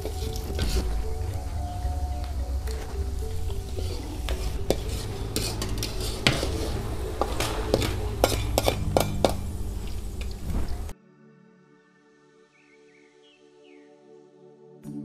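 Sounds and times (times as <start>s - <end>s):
metal spatula clinking and scraping: 3.5s - 10.4s.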